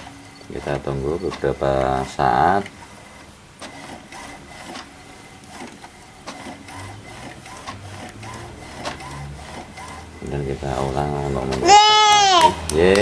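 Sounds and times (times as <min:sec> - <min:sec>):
printer mechanism clicking: 0:00.0 - 0:13.0
low motor hum: 0:06.0 - 0:13.0.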